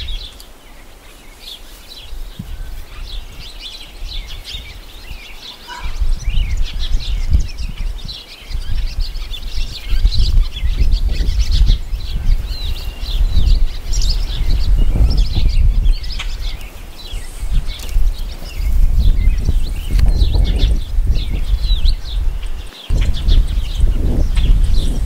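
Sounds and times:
songbirds chirping: 0.0 - 25.0
wind buffeting microphone: 0.0 - 25.0.

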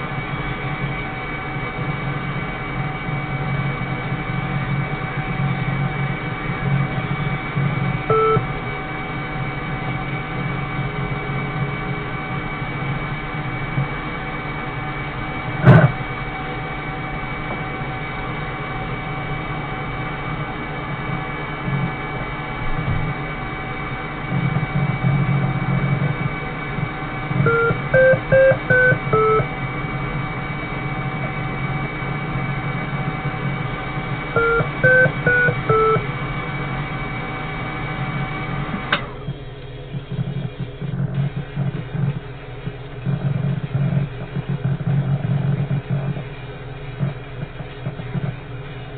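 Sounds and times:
steady electrical hum: 0.0 - 48.9
electronic beeps stepping in pitch: 8.1 - 8.4, 27.5 - 29.5, 34.4 - 36.0.

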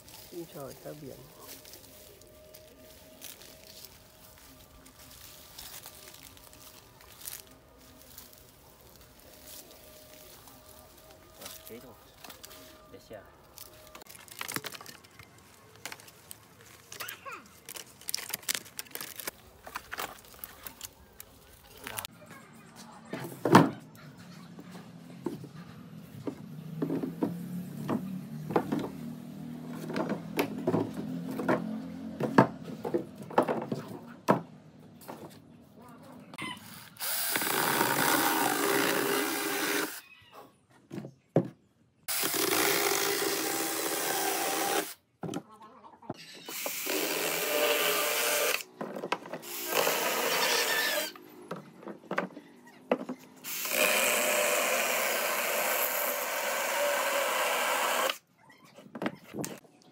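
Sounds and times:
cordless power saw cutting: 36.6 - 40.0, 42.1 - 45.0, 46.5 - 48.7, 49.4 - 51.2, 53.4 - 58.2.

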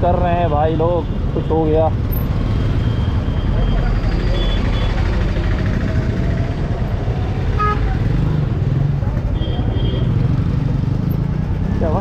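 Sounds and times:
street traffic: 0.0 - 12.0
motorcycle engine rumble: 0.2 - 12.0.

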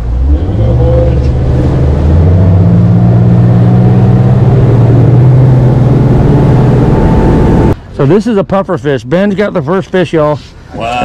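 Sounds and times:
boat motor running: 0.0 - 7.8.

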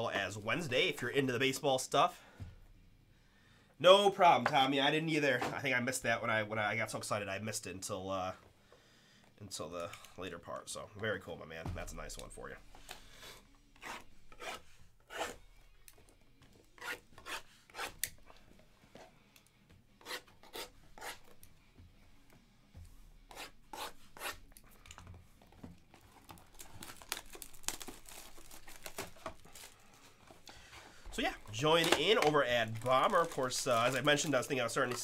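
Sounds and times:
plastic wrap being slit and torn: 26.2 - 29.8, 31.5 - 34.4.

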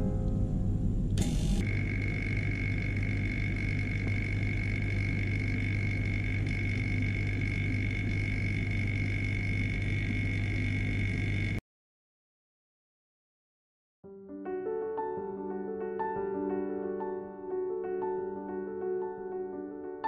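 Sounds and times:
high whine: 0.0 - 11.6
vacuum pump humming: 0.0 - 11.6.

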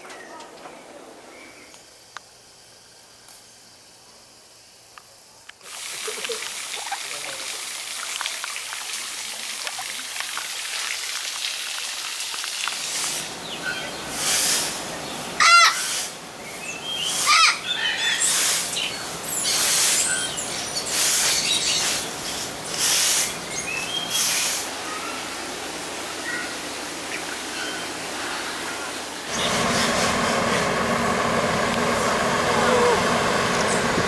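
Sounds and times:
parrots calling: 15.4 - 16.1, 17.0 - 22.0.

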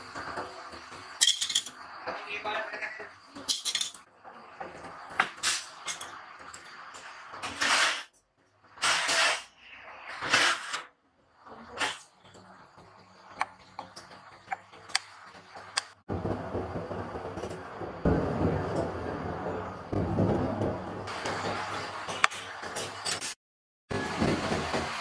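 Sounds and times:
hot bath hissing and bubbling: 0.0 - 23.2, 23.9 - 25.0.

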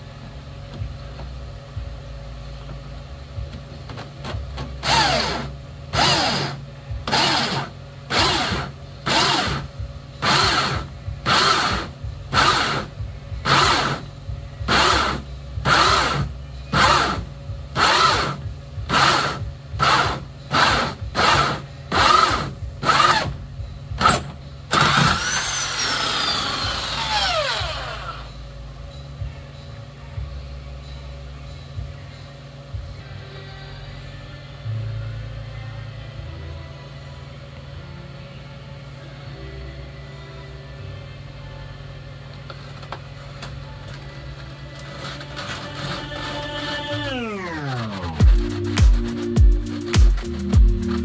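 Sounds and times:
power drill with hole saw: 4.8 - 14.0, 14.7 - 17.2, 17.8 - 23.3, 24.0 - 28.3.

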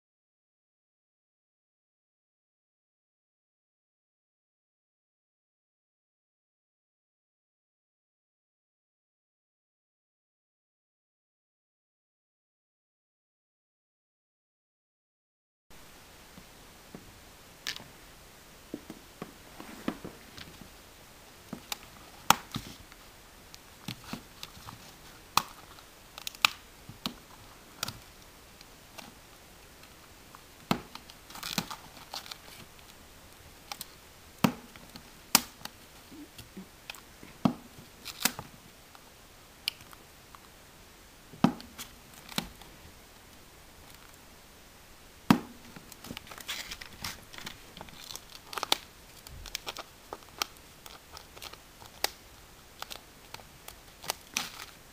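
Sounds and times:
paper crinkling: 30.9 - 33.0, 45.8 - 54.9.

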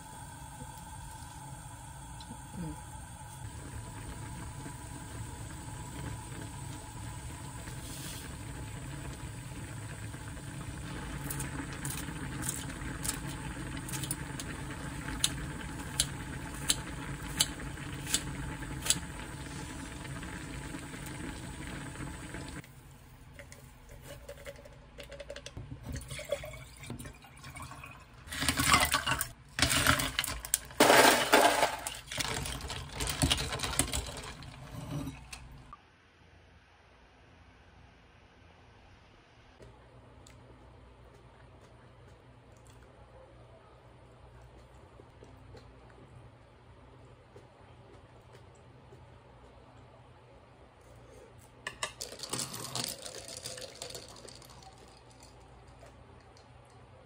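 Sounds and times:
stew bubbling: 0.0 - 22.7
ice clinking: 24.2 - 35.6, 51.7 - 55.5
drink pouring over ice: 52.0 - 55.4.

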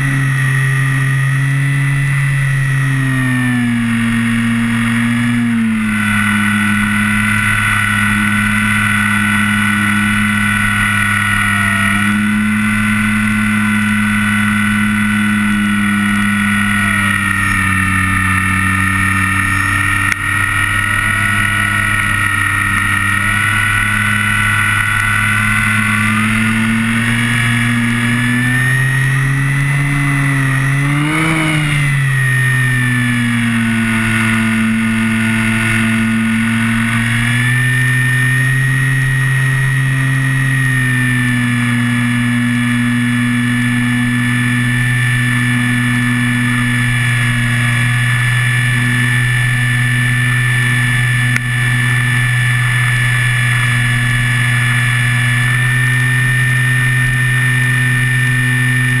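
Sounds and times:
electric motor whine with propeller buzz: 0.0 - 59.0.

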